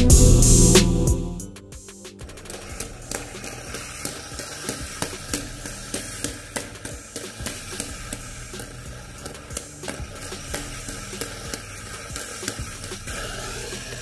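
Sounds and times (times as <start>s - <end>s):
fingers clicking on spinning disc: 2.3s - 14.0s.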